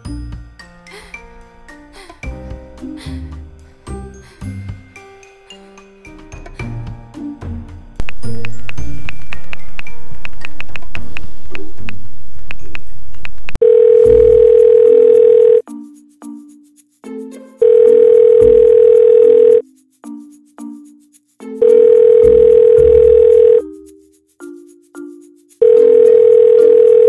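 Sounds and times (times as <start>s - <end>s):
background music: 0.0s - 11.8s, 15.6s - 27.0s
telephone ringback tone: 13.6s - 15.6s, 17.6s - 19.6s, 21.6s - 23.6s, 25.6s - 27.0s.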